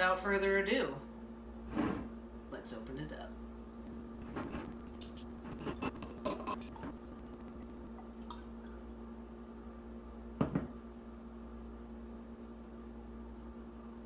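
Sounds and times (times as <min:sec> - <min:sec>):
wine pouring into a glass: 0:07.9 - 0:09.0
glass bottle set down on counter: 0:10.4 - 0:10.7.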